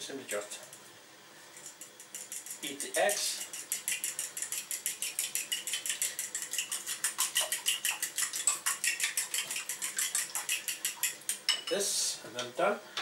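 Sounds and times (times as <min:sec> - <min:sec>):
fork beating eggs in bowl: 0:01.6 - 0:11.9.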